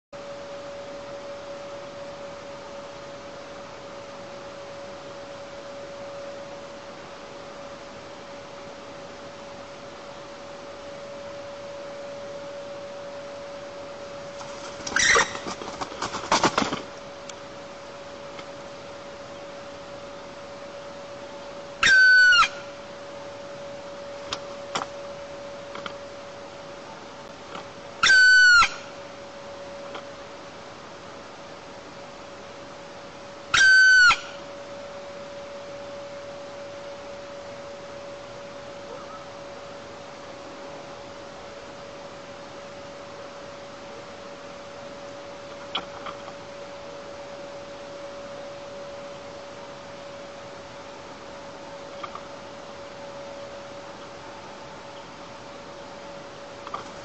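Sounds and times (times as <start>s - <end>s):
electrical hum: 0.2s - 57.0s
woodpecker shrieking: 14.8s - 15.6s, 21.8s - 22.7s, 28.0s - 29.0s, 33.5s - 34.4s.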